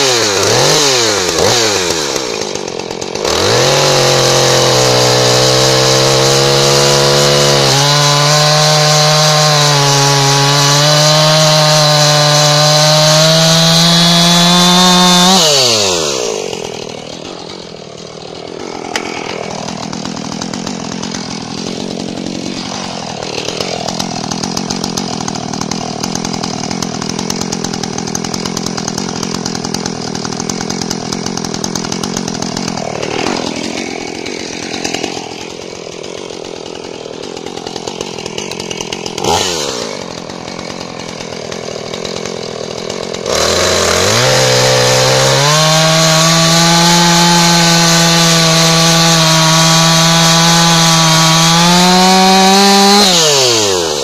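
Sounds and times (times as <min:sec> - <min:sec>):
chainsaw cutting through log: 0:00.0 - 0:54.0
chainsaw idling: 0:00.0 - 0:54.0.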